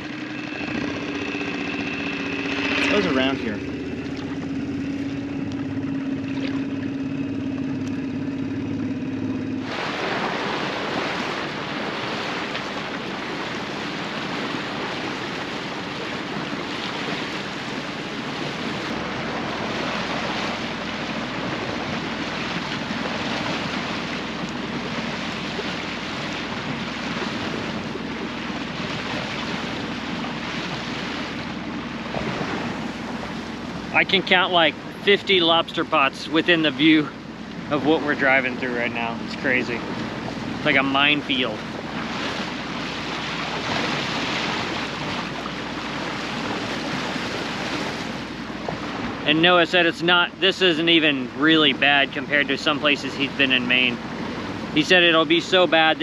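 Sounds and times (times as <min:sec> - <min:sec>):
outboard motor running: 0:00.0 - 0:56.0
water rushing past hull: 0:00.0 - 0:56.0.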